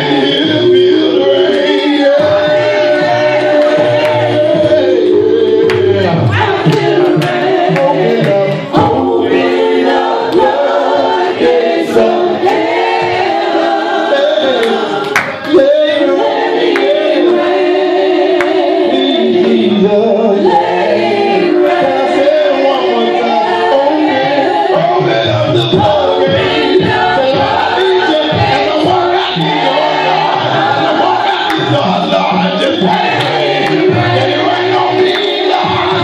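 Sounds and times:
congregation singing: 0:00.0 - 0:36.0
man singing into microphone: 0:15.5 - 0:16.2.

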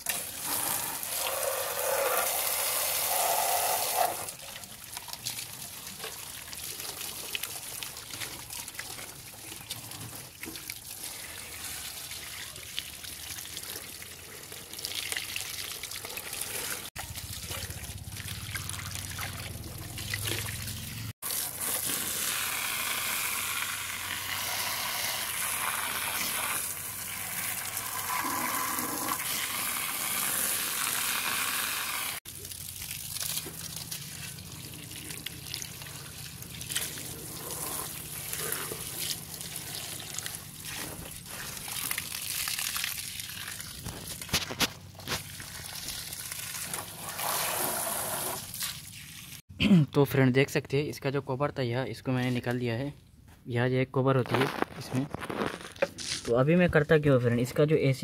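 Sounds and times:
hose water spraying on metal: 0:00.0 - 0:04.4, 0:20.4 - 0:42.7, 0:43.8 - 0:49.4
water dripping onto grass: 0:04.8 - 0:11.1, 0:32.3 - 0:37.2, 0:41.6 - 0:46.8.

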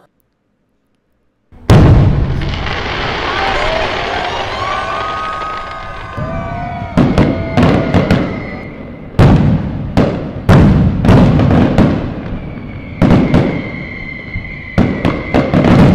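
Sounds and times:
fireworks bangs: 0:01.6 - 0:15.9.

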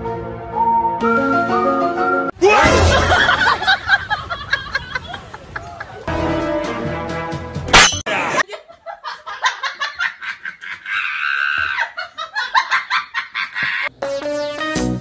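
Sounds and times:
music: 0:00.0 - 0:02.4, 0:06.1 - 0:07.8, 0:13.9 - 0:15.0
person laughing hard: 0:02.4 - 0:06.1, 0:08.4 - 0:13.9.

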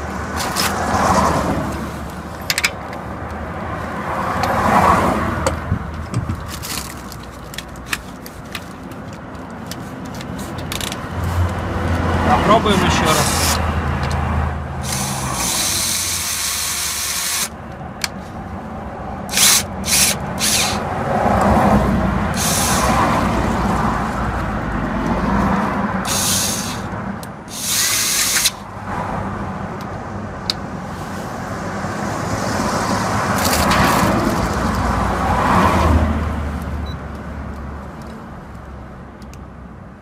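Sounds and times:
cordless drill running: 0:13.2 - 0:13.6, 0:14.8 - 0:17.5, 0:19.3 - 0:20.8, 0:22.3 - 0:22.9, 0:26.1 - 0:26.9, 0:27.5 - 0:28.6.

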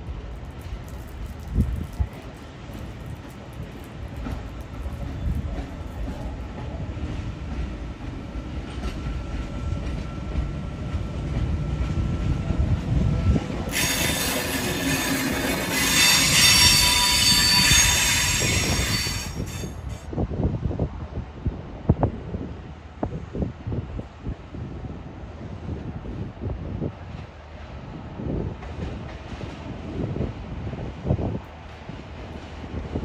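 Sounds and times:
electric train rumbling: 0:00.0 - 0:33.0
wheels squealing: 0:13.7 - 0:20.0.

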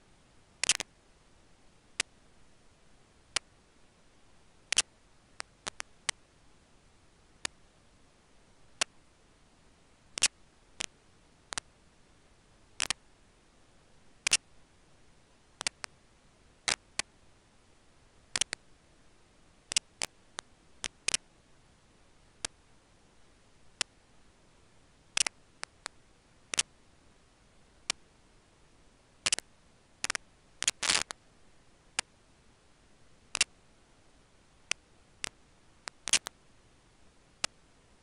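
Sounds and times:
faint steady hiss: 0:00.0 - 0:38.0
sharp clicks: 0:00.6 - 0:00.9, 0:04.7 - 0:06.2, 0:12.8 - 0:13.0, 0:14.2 - 0:14.5, 0:15.6 - 0:15.9, 0:18.3 - 0:18.6, 0:19.7 - 0:21.3, 0:25.2 - 0:26.7, 0:33.3 - 0:33.5, 0:34.7 - 0:36.4.

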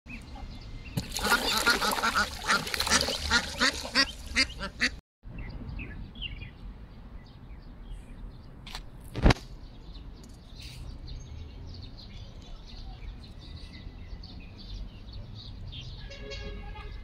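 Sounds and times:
ducks quacking: 0:01.1 - 0:05.0.

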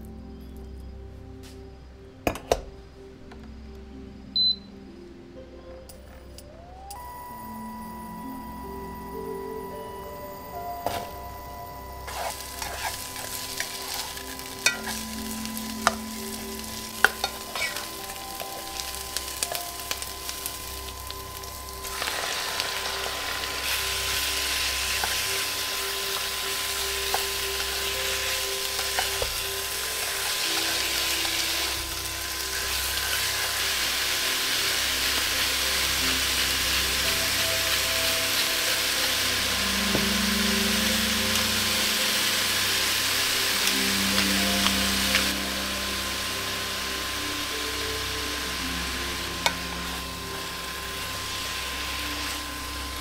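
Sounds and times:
meat sizzling in pot: 0:12.0 - 0:53.0
onion sizzling in hot oil: 0:12.0 - 0:53.0.

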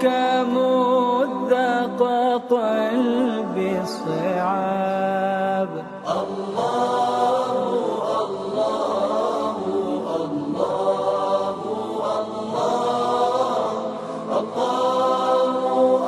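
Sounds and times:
voices chanting devotional song: 0:00.0 - 0:16.0.

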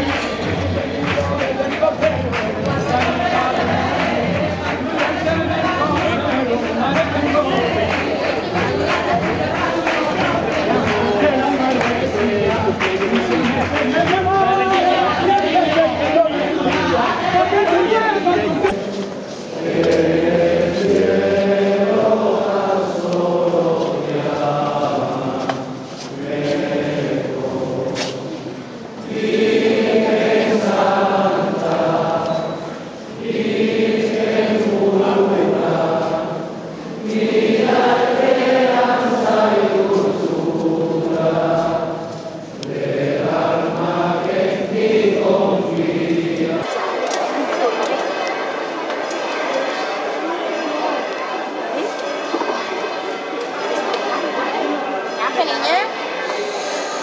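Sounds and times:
group of voices singing: 0:00.0 - 0:57.0.

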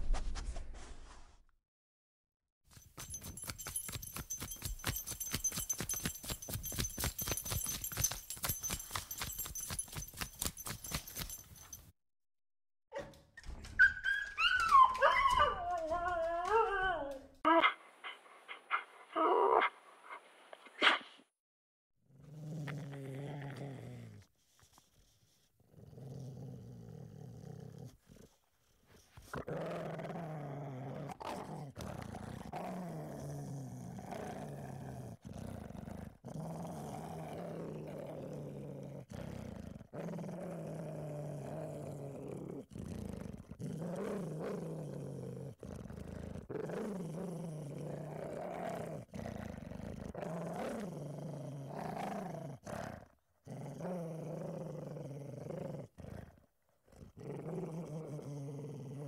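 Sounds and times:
dog growling: 0:22.1 - 0:24.3, 0:25.7 - 0:28.4, 0:29.3 - 0:59.0.

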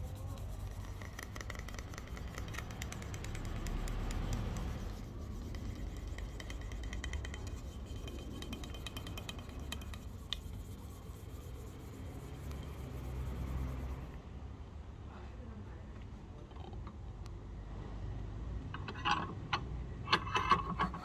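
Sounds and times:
scraper on wooden handle: 0:00.0 - 0:14.2.

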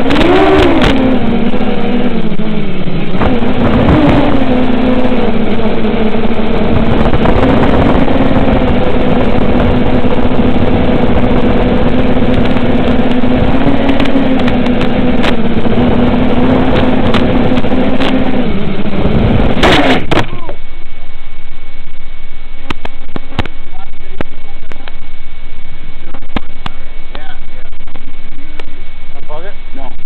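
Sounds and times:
heavy radio hiss: 0:22.6 - 0:30.0.

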